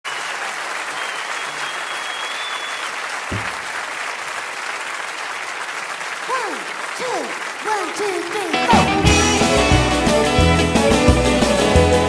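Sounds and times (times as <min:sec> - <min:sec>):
audience clapping: 0:00.0 - 0:10.2
low thump: 0:03.3 - 0:03.8.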